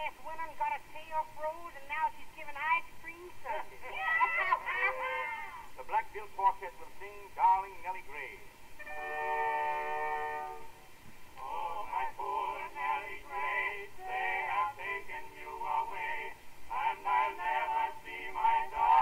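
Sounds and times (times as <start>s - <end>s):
held music chord: 8.8s - 10.8s.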